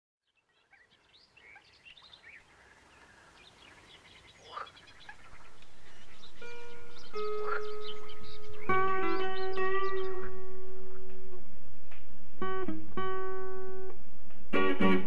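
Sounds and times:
birds chirping and singing: 0.3s - 11.1s
plucked guitar music: 5.2s - 15.0s.

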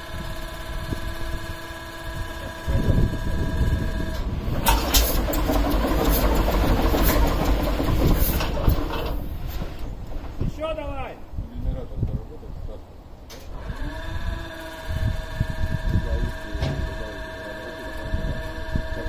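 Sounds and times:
electric starter whine: 0.0s - 9.9s, 13.3s - 19.0s
diesel engine turning over: 0.0s - 10.1s, 13.4s - 19.0s
diesel exhaust sharp cracks: 2.8s - 10.8s.

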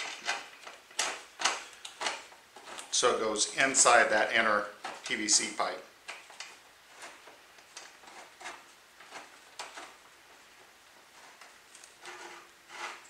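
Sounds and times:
metal nut scraping in pipe: 11.9s - 13.0s.

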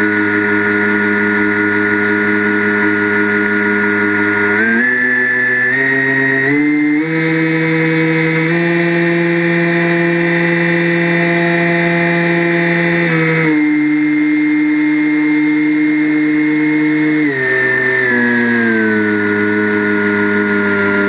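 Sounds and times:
drone propellers whining: 0.0s - 21.0s.

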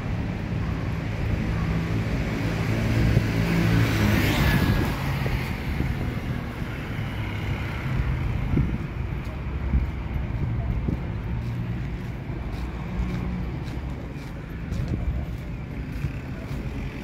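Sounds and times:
motorbike passing: 1.6s - 9.4s.

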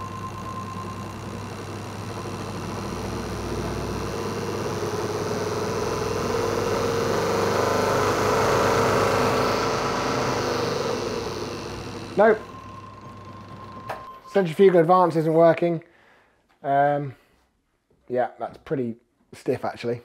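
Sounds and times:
distributor testing machine motor spinning: 0.0s - 14.5s.

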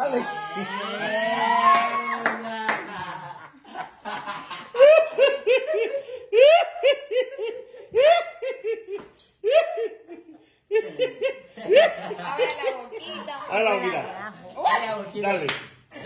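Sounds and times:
person laughing heartily: 2.6s - 12.3s.

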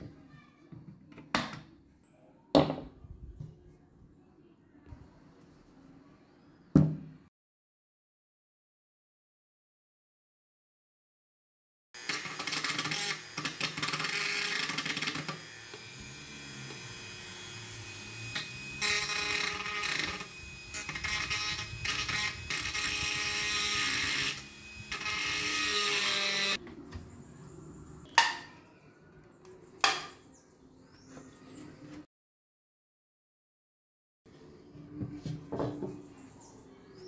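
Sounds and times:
rotary tool grinding metal: 12.0s - 26.6s.

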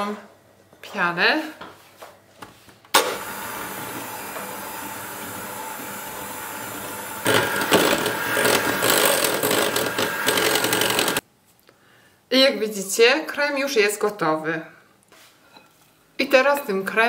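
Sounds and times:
electric hand mixer whirring: 3.0s - 11.2s.

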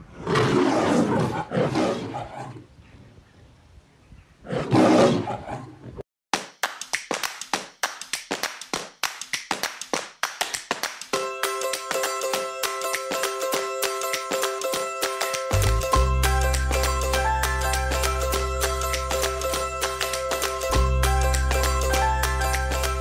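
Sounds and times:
lion roaring: 0.1s - 2.7s, 4.4s - 6.0s
musical notes: 11.2s - 23.0s.

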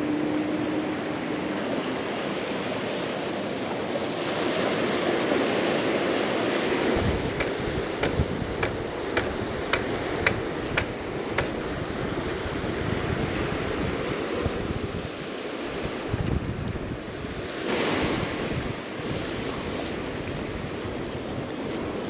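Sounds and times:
surf washing over rocks: 0.0s - 22.0s
wind buffeting microphone: 0.0s - 22.0s.

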